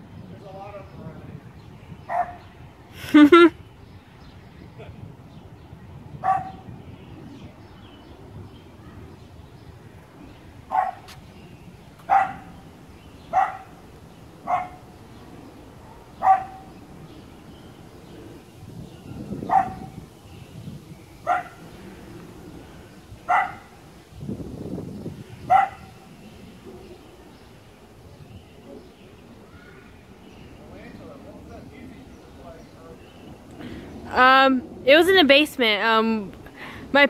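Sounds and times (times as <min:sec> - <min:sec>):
dog barking: 0:02.1 - 0:02.4, 0:06.2 - 0:06.6, 0:10.7 - 0:11.1, 0:12.1 - 0:12.5, 0:13.3 - 0:13.7, 0:14.5 - 0:14.8, 0:16.2 - 0:16.7, 0:19.4 - 0:19.9, 0:21.3 - 0:21.6, 0:23.3 - 0:23.7, 0:25.5 - 0:26.0.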